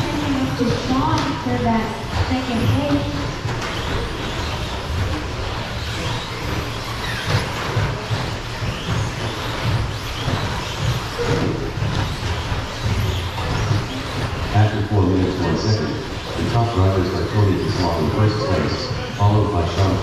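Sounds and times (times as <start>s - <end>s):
rc truck motors whining: 0.0s - 18.4s.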